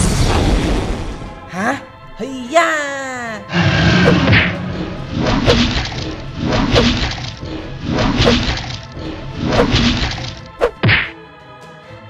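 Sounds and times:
background music: 0:00.0 - 0:12.0
fight hit sound effects: 0:03.6 - 0:08.8.

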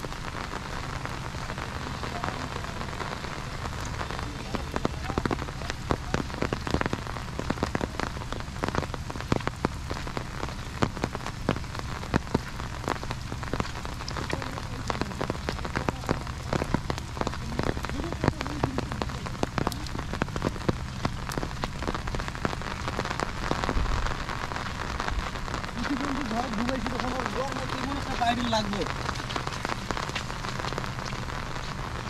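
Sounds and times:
rain on an umbrella: 0:00.0 - 0:32.0.

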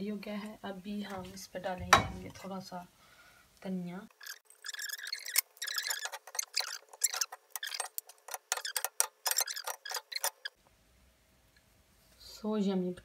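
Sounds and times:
wooden spoon scraping frying pan: 0:04.2 - 0:10.6.

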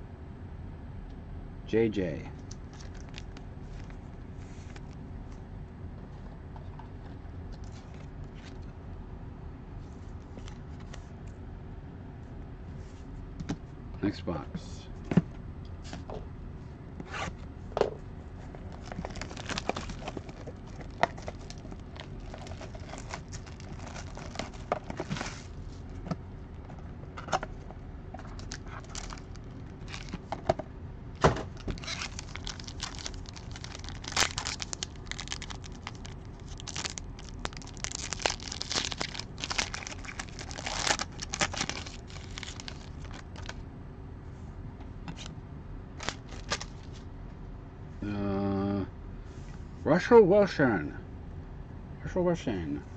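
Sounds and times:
paper and foil tearing: 0:18.7 - 0:25.5, 0:28.4 - 0:30.1, 0:31.6 - 0:43.5, 0:46.0 - 0:46.8.

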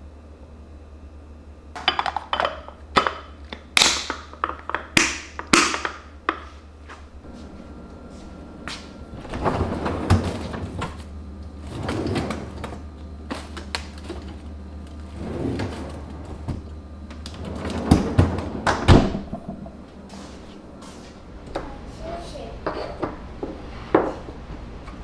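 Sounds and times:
freezer drawer opening: 0:08.9 - 0:19.8.

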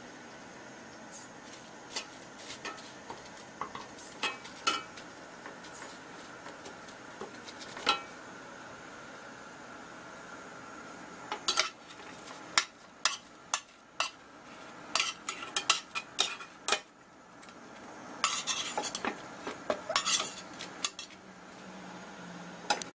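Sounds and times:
utensil scraping a skillet: 0:01.1 - 0:08.1, 0:11.3 - 0:16.9, 0:18.2 - 0:21.2.

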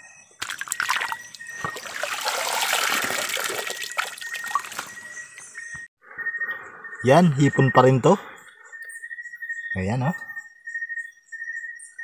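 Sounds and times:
river water splashing: 0:00.4 - 0:05.1.

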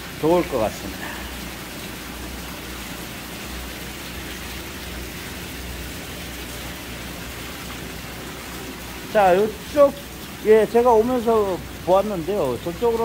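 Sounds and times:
water splashing and bubbling in tanks: 0:00.0 - 0:13.0.

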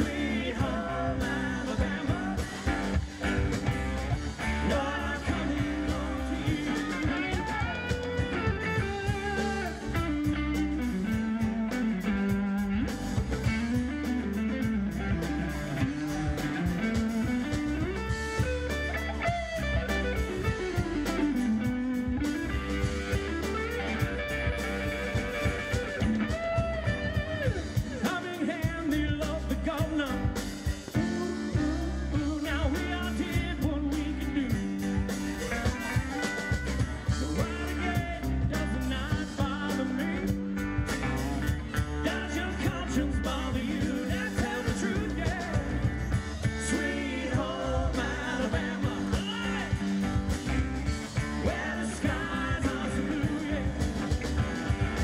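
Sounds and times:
drum kit beat: 0:00.0 - 0:55.0
electric and acoustic guitars: 0:00.0 - 0:55.0
keyboard: 0:00.0 - 0:55.0
woman singing lead: 0:04.4 - 0:10.0.

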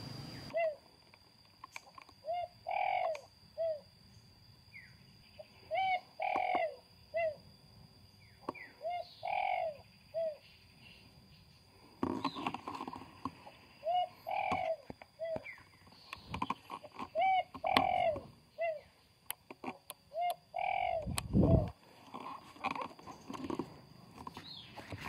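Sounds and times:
dove cooing: 0:00.5 - 0:00.9, 0:02.2 - 0:03.9, 0:05.7 - 0:07.4, 0:08.6 - 0:10.4, 0:13.8 - 0:15.6, 0:16.9 - 0:18.9, 0:20.1 - 0:21.7.

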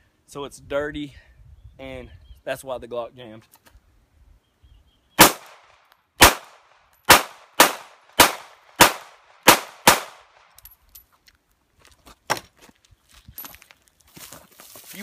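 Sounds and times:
pistol shots: 0:05.2 - 0:10.4.

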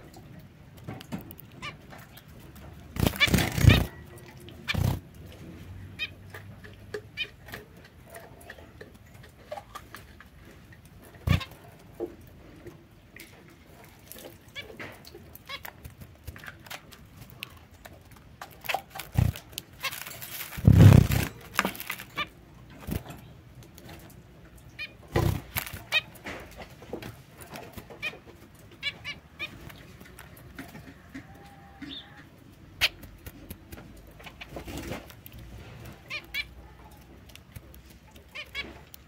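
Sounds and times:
finches giving nasal calls: 0:03.0 - 0:04.0, 0:04.6 - 0:05.0, 0:11.2 - 0:11.6, 0:18.6 - 0:22.3.

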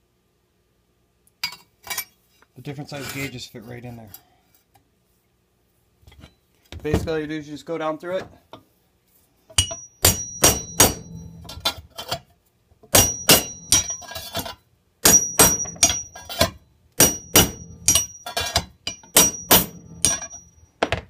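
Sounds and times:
hammer striking steel with metallic ring: 0:09.6 - 0:11.6, 0:12.9 - 0:14.3, 0:15.0 - 0:20.6.

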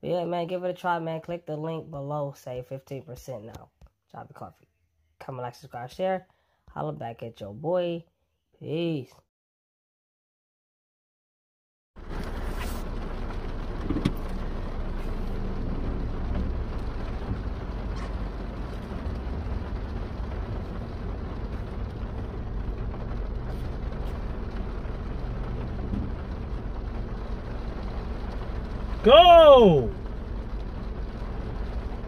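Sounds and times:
car low hum: 0:12.0 - 0:32.0
rain on car roof: 0:12.0 - 0:32.0.

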